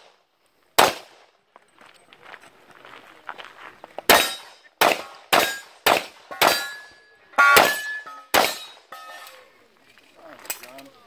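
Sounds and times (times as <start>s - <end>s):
handgun shots: 0.8s - 1.1s, 4.1s - 6.8s, 7.4s - 8.8s
steel targets ringing: 4.1s - 5.7s, 6.3s - 9.4s.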